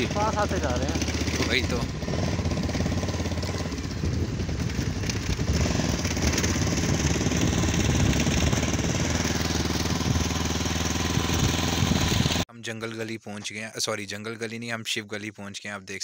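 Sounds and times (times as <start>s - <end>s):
motorcycle engine running: 0.0s - 12.4s.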